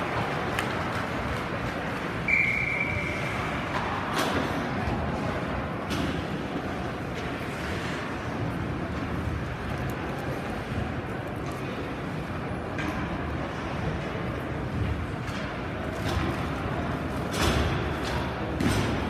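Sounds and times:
ice rink noise: 0:00.0 - 0:19.0
referee's whistle blast: 0:02.3 - 0:03.3.

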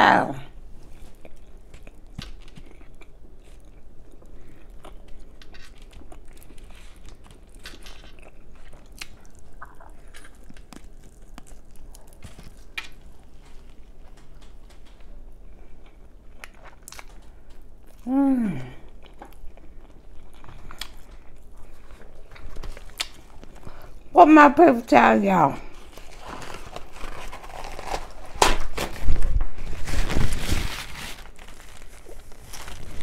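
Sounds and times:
person chewing meat: 0:00.8 - 0:18.1, 0:18.8 - 0:24.1.

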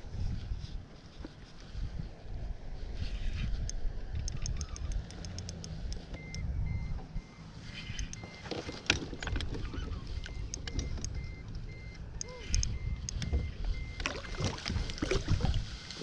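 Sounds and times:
wind on microphone: 0:00.0 - 0:08.2, 0:12.2 - 0:16.0
faint sharp clicks: 0:03.6 - 0:06.4
faint high beep: 0:06.2 - 0:08.5, 0:10.1 - 0:15.5.

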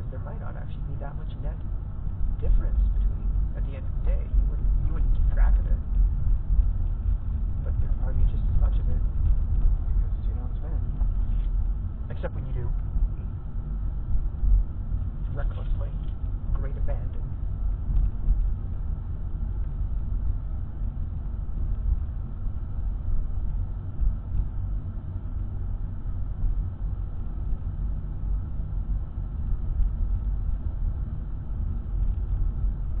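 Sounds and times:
car engine and tyres rumbling: 0:00.0 - 0:33.0.

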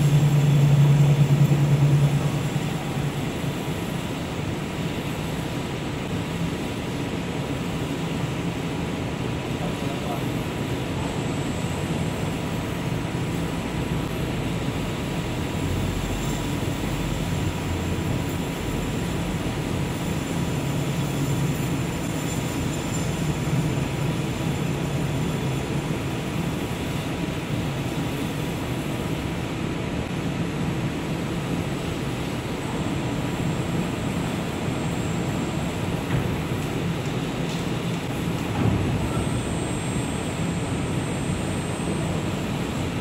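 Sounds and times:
metal spinning machine drone: 0:00.0 - 0:06.1, 0:10.8 - 0:26.6.

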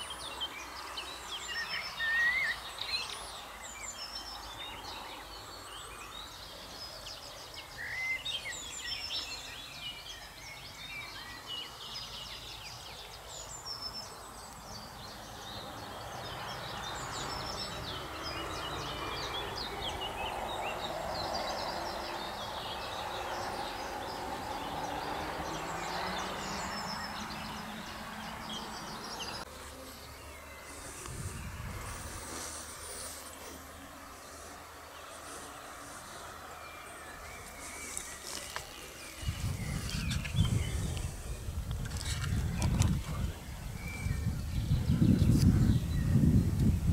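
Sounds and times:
songbirds chirping and whistling: 0:00.0 - 0:46.9
broad rushing noise: 0:16.4 - 0:46.9.

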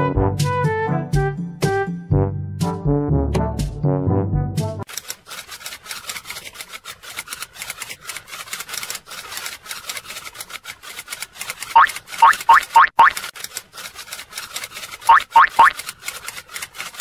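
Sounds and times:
fingers scratching cat fur: 0:04.9 - 0:17.0.

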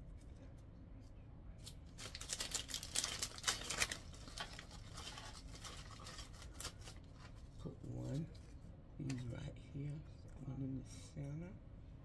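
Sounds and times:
plastic packaging crinkling: 0:01.6 - 0:07.4.

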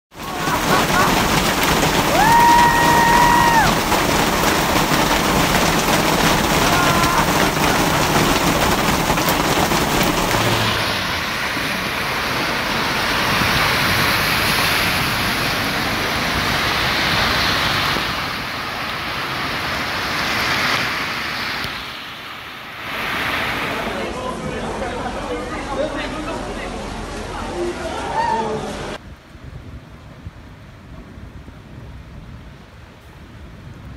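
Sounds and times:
car tyres splashing through slush: 0:00.1 - 0:24.1
hail and heavy rain: 0:00.1 - 0:24.1.

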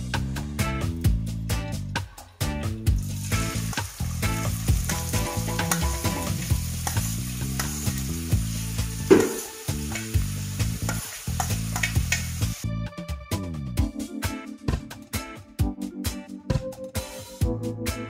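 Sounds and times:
onions sizzling in hot oil: 0:02.9 - 0:12.6.

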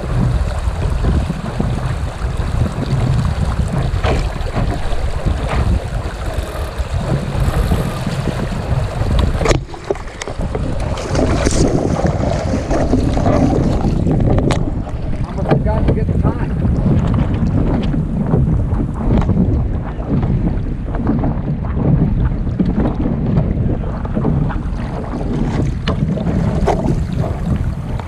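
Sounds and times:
sharp splashes or knocks: 0:00.0 - 0:16.0
water splashing against hull: 0:00.0 - 0:28.0
wind buffeting microphone: 0:00.0 - 0:28.0.

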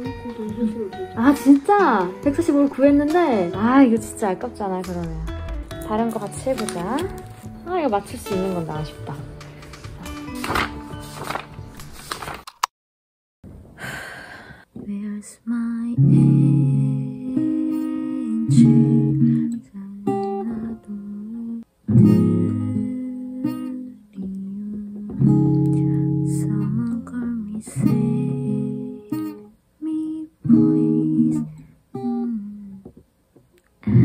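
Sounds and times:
acoustic guitar strummed chords: 0:00.0 - 0:11.2, 0:16.0 - 0:21.0, 0:21.9 - 0:29.5.

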